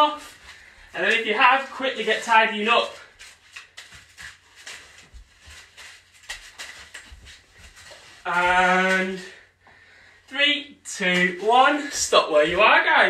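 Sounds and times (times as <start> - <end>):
paper rustling and crackling: 0.0 - 9.4.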